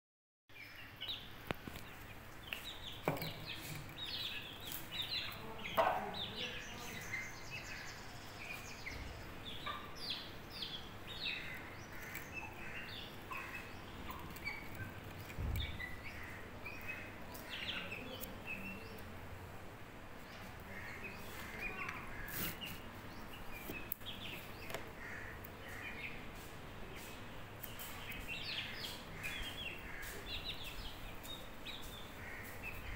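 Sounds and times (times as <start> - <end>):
chicks peeping: 0.6 - 19.5, 20.2 - 32.9
beaks tapping on concrete: 1.0 - 7.7, 8.5 - 19.1, 20.3 - 26.2, 26.9 - 32.9.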